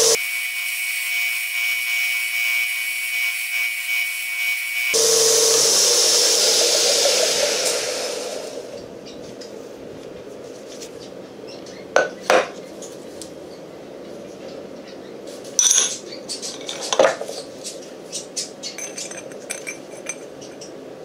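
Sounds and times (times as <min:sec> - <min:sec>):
belt grinder grinding steel: 0:00.0 - 0:08.8
motor low hum: 0:05.0 - 0:10.3.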